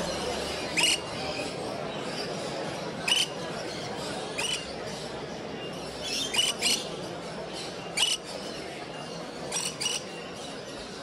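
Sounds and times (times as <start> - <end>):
background murmur: 0.0 - 11.0
parrots chirping: 0.1 - 1.6, 3.0 - 3.4, 4.3 - 4.8, 6.0 - 6.9, 7.9 - 8.4, 9.4 - 10.1.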